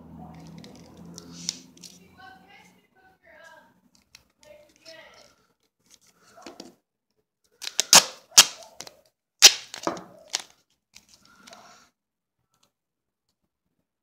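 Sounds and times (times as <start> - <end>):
tape crinkling: 0.4 - 2.1, 3.9 - 6.2, 7.6 - 11.5
duct tape ripping: 0.5 - 2.0, 7.6 - 10.6.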